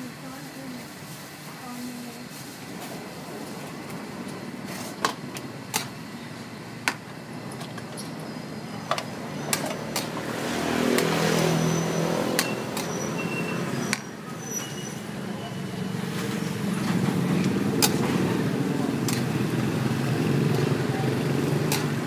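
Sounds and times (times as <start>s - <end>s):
motor vehicle passing: 9.2s - 14.4s.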